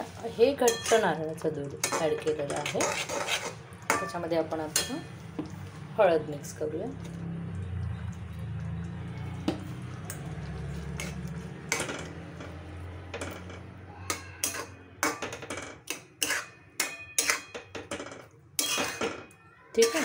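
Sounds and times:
spatula stirring in pan: 0.0 - 13.4, 14.0 - 17.8
spatula clinking on metal pan: 0.6 - 1.2, 1.8 - 3.0, 3.9 - 5.1, 14.1 - 20.0.

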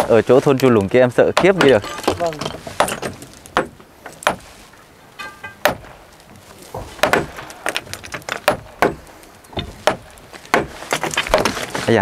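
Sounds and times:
hammers striking stone: 1.2 - 4.4, 5.2 - 6.0, 6.8 - 11.8.

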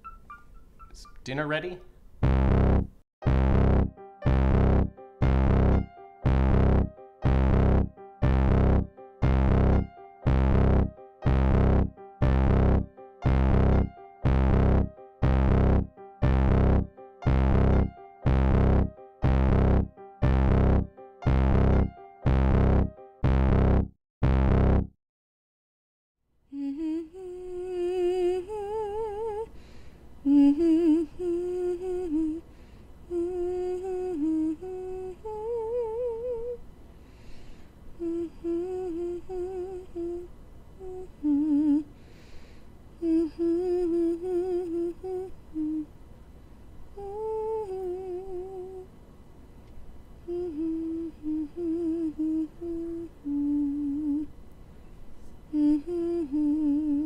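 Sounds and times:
woman humming with vibrato: 4.5 - 19.9, 26.5 - 29.5, 30.3 - 32.4, 33.1 - 36.6, 38.0 - 41.9, 43.0 - 45.9, 47.0 - 48.9, 50.2 - 54.3, 55.5 - 57.0.

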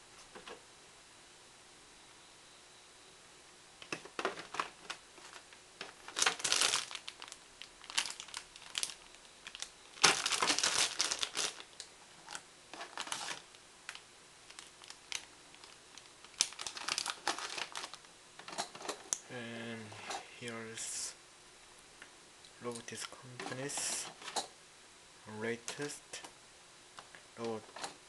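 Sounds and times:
plastic bags crinkling: 4.1 - 19.1.

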